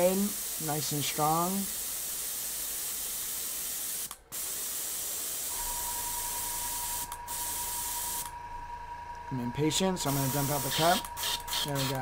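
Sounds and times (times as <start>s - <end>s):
airbrush spraying hiss: 0.0s - 5.6s, 6.7s - 8.3s, 10.0s - 12.0s
low hum with whine: 5.5s - 12.0s.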